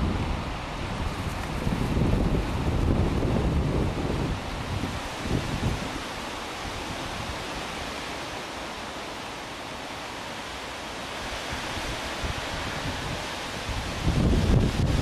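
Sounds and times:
wind noise on microphone: 0.0s - 8.1s, 11.2s - 15.0s.

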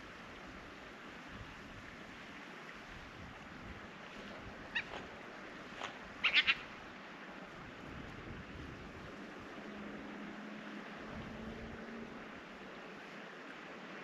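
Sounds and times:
otter calling: 4.7s - 5.1s, 5.8s - 6.7s.

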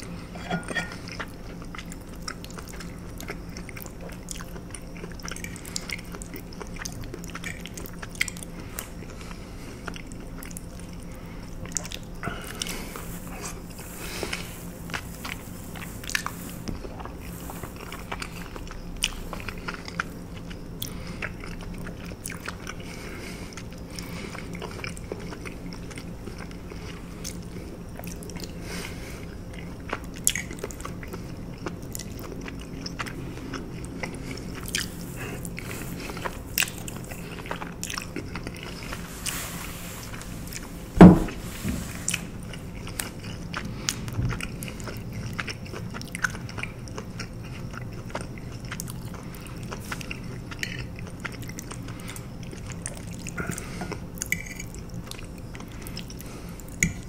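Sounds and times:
wet smacking and chewing: 0.0s - 28.6s, 29.2s - 39.4s, 42.1s - 57.0s.

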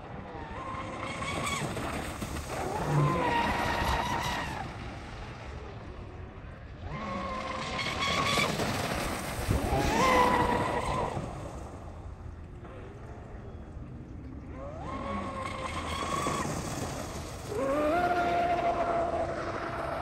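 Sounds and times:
boat throwing spray: 0.5s - 5.9s, 6.8s - 12.3s, 14.6s - 20.0s.

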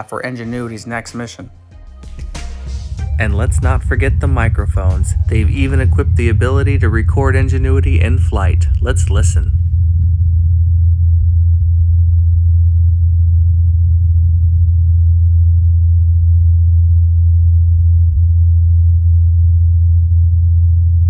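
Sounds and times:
helicopter rotors humming: 2.2s - 10.2s.

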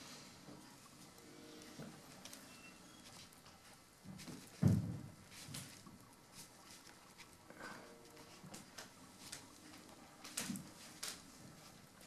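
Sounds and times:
light rustles of wires: 1.1s - 12.0s
dull knock: 4.6s - 5.1s.

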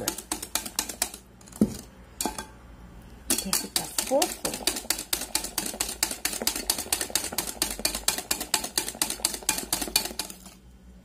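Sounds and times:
whisk clicking against glass bowl: 0.0s - 1.3s, 3.3s - 10.6s.

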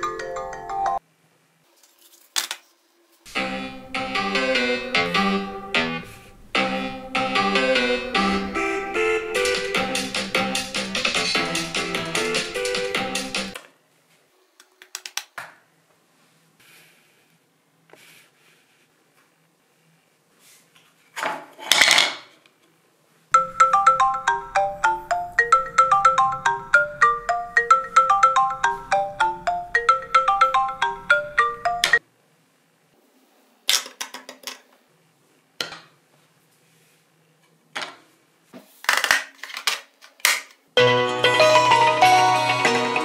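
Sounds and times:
phone ringtone marimba melody: 0.0s - 1.0s, 6.6s - 13.6s, 23.4s - 32.0s, 40.8s - 43.0s.

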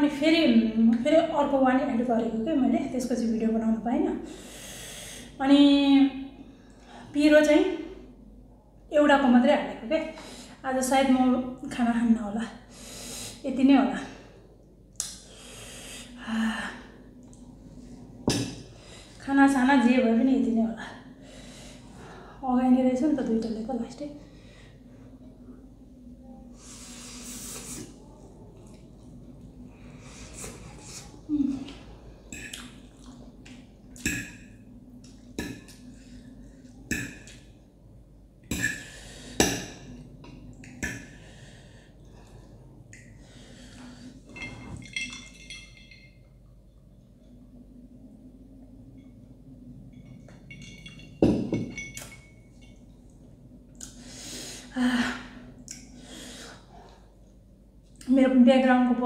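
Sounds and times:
sharp breaths through lips: 4.3s - 5.4s
person chewing and lip smacking: 32.3s - 34.2s.

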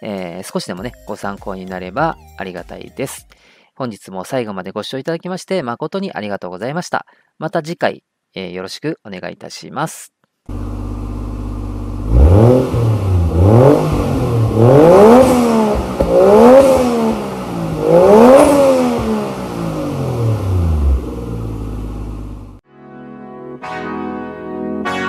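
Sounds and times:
car engine revving: 10.5s - 22.6s.

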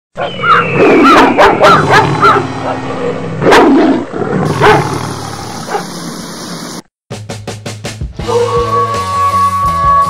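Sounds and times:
dog yipping: 0.2s - 2.4s
dog barking: 0.2s - 2.5s, 3.4s - 3.8s, 4.5s - 4.9s, 5.6s - 5.9s.

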